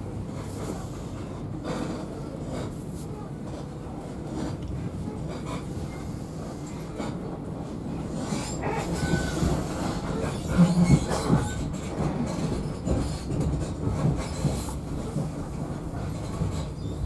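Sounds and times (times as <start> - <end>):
train wheels clattering over rail joints: 8.1 - 17.0.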